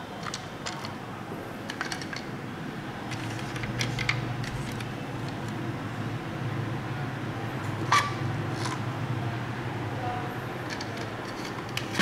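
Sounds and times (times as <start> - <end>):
plastic toy trucks clicking: 0.2 - 1.0, 1.7 - 2.3, 10.6 - 12.0.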